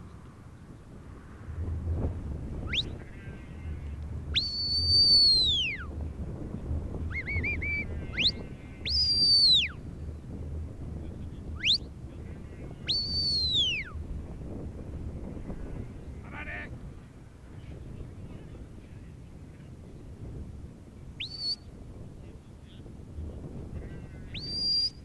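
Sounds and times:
handler's whistle commands: 2.7 - 3.0, 4.4 - 5.9, 7.1 - 9.8, 11.6 - 11.9, 12.9 - 14.0, 21.2 - 21.7, 24.3 - 25.0.

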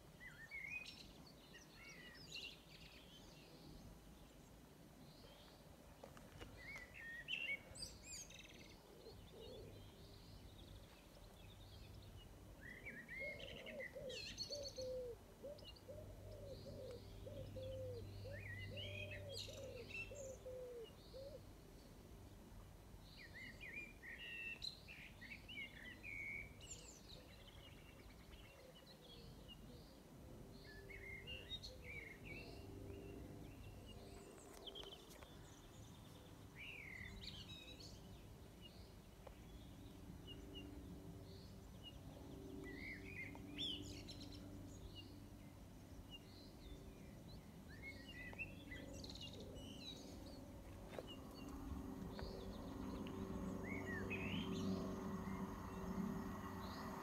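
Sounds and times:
faint low hum: 0.2 - 57.0
birds singing and chirping: 5.2 - 21.4, 30.6 - 57.0.

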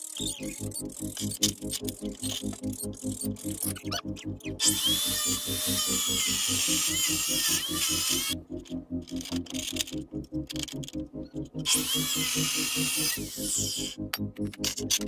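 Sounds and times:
chop saw cutting steel: 0.2 - 8.4, 11.6 - 14.9.

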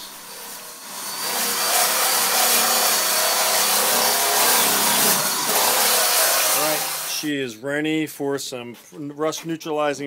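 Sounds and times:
drill motor whine: 0.0 - 7.2
sanding disc grinding metal: 0.0 - 7.3.

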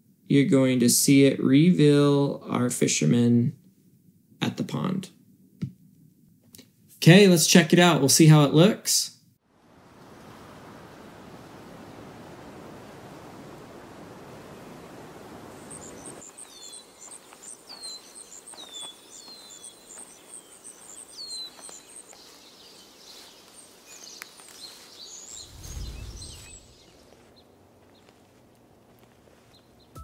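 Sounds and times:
birdsong: 15.3 - 30.0
bird chirps: 15.5 - 28.1
short low rumble: 25.4 - 26.8.

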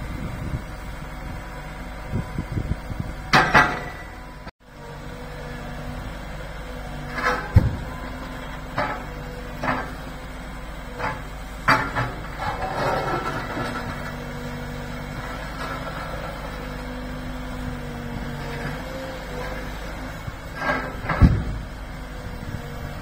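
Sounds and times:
diesel engine running: 0.0 - 23.0
excavator bucket clanks: 11.0 - 14.1
rattle of debris: 11.0 - 14.3.

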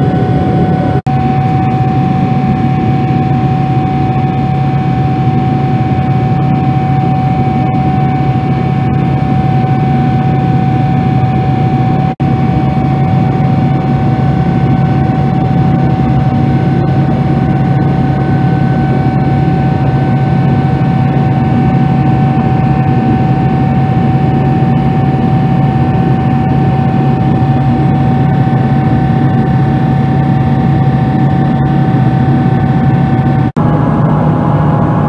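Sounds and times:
high whine: 0.0 - 35.0
jet engine and airflow noise: 0.0 - 35.0.

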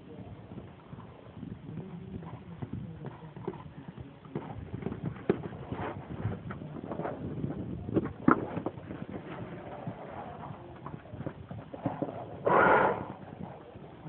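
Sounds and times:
hoofbeats on grass: 0.6 - 14.0.

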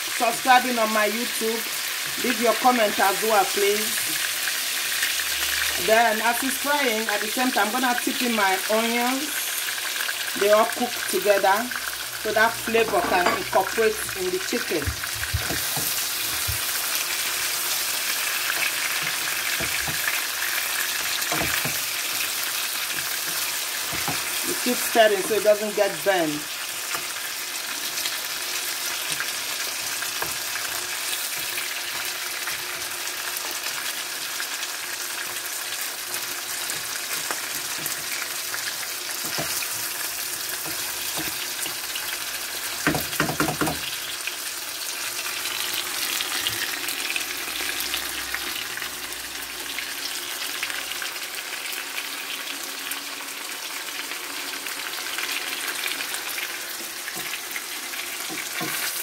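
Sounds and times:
food sizzling in frying pan: 0.0 - 59.0
spatula knocking on pan: 14.8 - 16.7, 21.2 - 21.8, 42.8 - 44.0
spatula stirring food: 14.9 - 25.5, 26.5 - 34.4, 35.1 - 44.0, 55.1 - 59.0.

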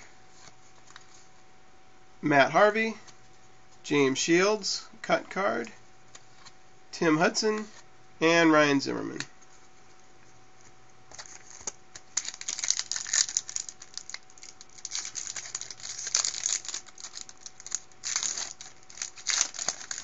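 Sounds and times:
foil wrapper crinkling: 11.1 - 20.0.

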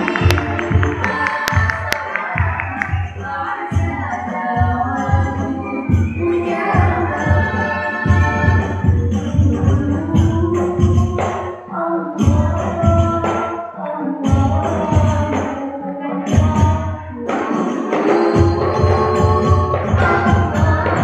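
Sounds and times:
frame drums playing rhythm: 0.0 - 11.6, 16.3 - 21.0
person singing melody: 0.0 - 21.0.

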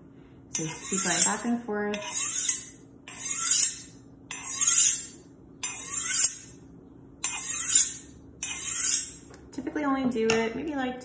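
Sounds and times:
knife scraping on honing steel: 0.5 - 6.6, 7.2 - 9.3.

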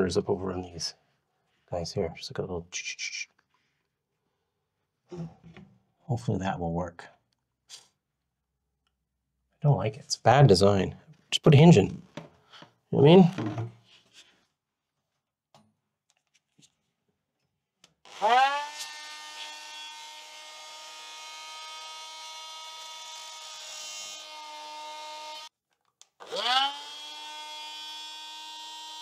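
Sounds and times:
rotary tool whining: 26.2 - 29.0.

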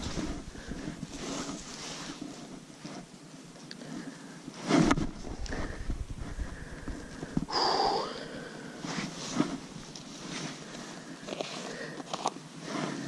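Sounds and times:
plastic box rustling: 9.0 - 12.4.

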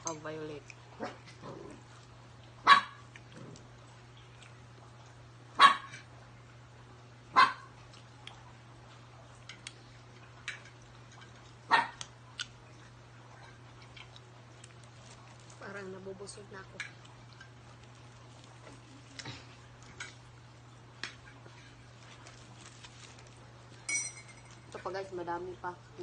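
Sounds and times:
dog barking: 2.6 - 3.0, 5.6 - 6.0, 7.3 - 7.7, 11.7 - 12.0.

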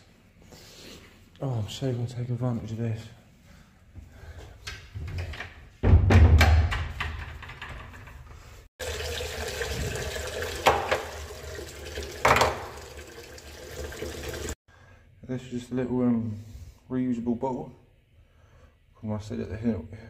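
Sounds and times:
tap water splashing into basin: 8.8 - 14.6.

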